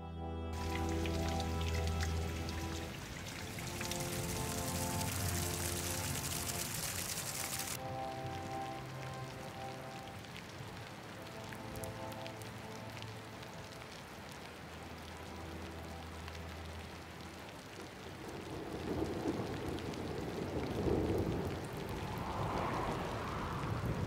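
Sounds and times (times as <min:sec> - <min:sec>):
thunder rumbling: 0:00.6 - 0:09.2, 0:18.0 - 0:24.0
steady rain falling: 0:00.6 - 0:24.0.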